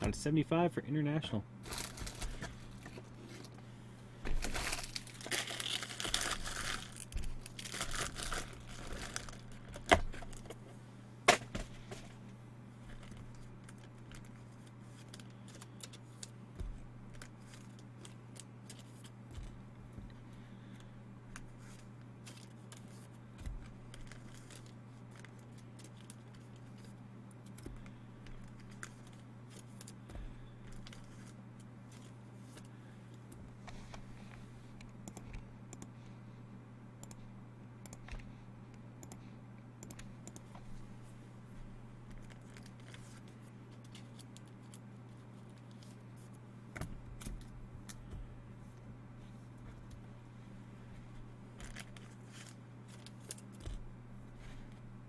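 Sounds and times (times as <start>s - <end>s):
steady low hum: 0.0s - 55.0s
plastic wrapping tearing and crumpling: 1.6s - 2.4s, 4.3s - 10.4s, 23.6s - 26.9s, 51.6s - 53.7s.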